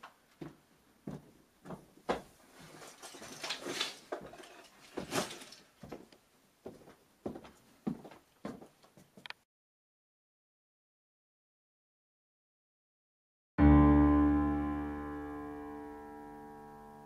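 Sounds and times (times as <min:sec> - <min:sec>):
footsteps on wooden floor: 0:00.4 - 0:02.8, 0:04.1 - 0:09.2
sports bag rustling: 0:02.5 - 0:05.8.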